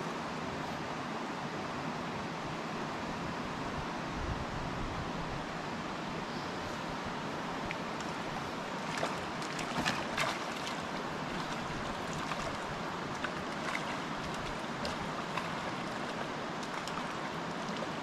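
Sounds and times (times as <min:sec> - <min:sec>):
creek water rushing: 0:05.4 - 0:18.0
water splashes: 0:07.2 - 0:18.0.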